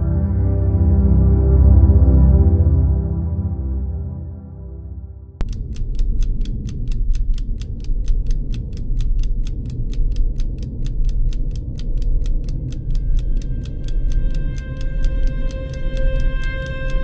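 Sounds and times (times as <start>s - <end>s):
low rumbling drone: 5.4s - 17.0s
rapid even ticking: 5.4s - 17.0s.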